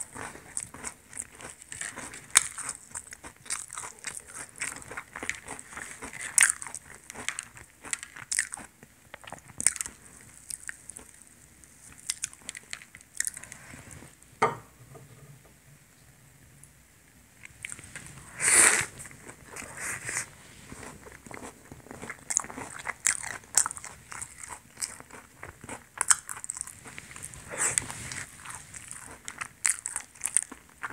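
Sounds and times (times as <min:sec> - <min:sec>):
crunchy pastry being torn and chewed: 0:20.8 - 0:30.9.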